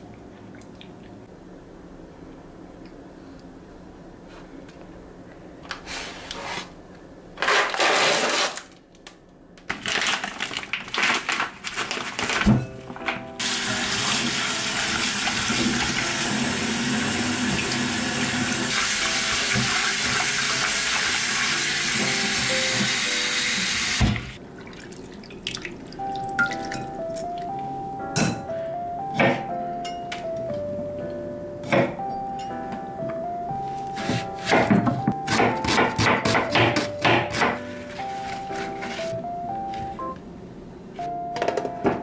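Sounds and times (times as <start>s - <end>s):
kitchen tap running into sink: 13.4s - 25.8s
water splashing: 24.1s - 26.8s.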